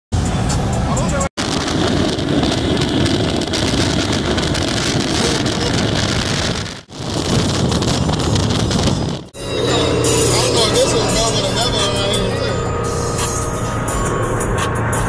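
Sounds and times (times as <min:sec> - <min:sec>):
cars passing at high speed: 0:00.2 - 0:15.0
wind rush on microphone: 0:00.3 - 0:09.4.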